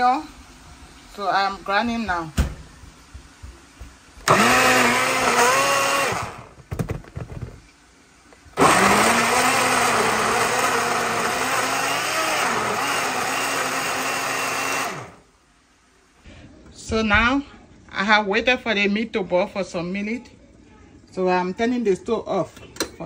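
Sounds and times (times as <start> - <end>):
blender motor grinding: 4.2 - 6.6, 8.6 - 15.2.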